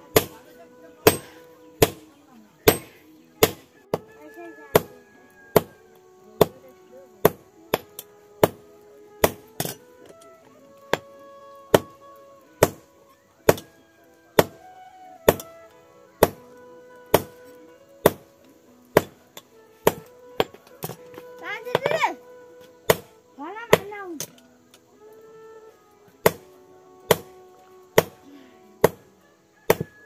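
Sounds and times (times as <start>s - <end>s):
hammer striking metal on anvil: 2.6s - 3.6s.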